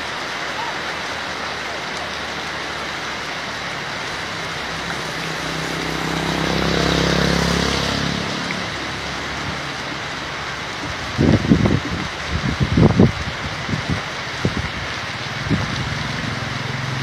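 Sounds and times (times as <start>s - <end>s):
rain and wind hiss: 0.0s - 17.0s
vehicle engine passing by: 2.0s - 11.0s, 15.2s - 17.0s.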